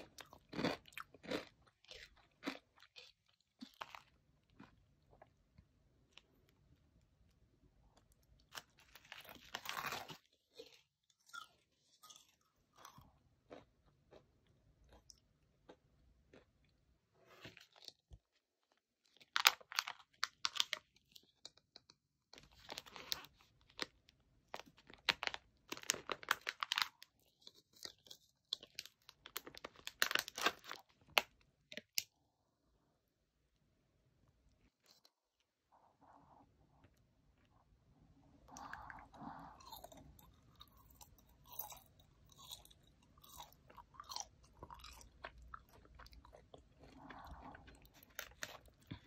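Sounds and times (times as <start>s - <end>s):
crunchy snack chewing: 0.0s - 5.3s, 8.0s - 18.4s, 22.3s - 32.0s, 38.5s - 49.0s.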